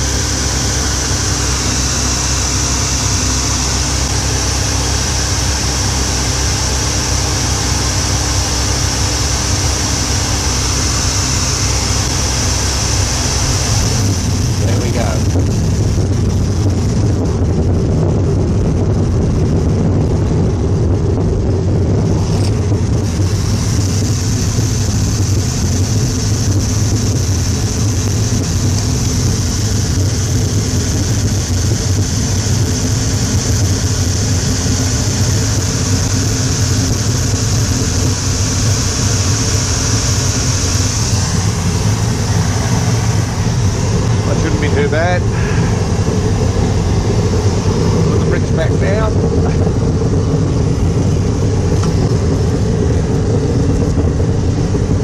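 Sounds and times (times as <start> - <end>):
furnace burner and blower roar: 0.0 - 55.0
gas torch: 22.0 - 55.0.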